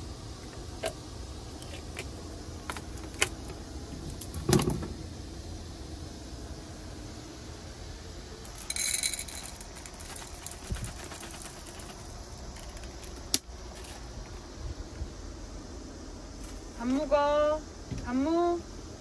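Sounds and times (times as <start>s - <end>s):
steady low hum: 0.0s - 19.0s
dry kibble rattling into bowl: 8.5s - 14.0s.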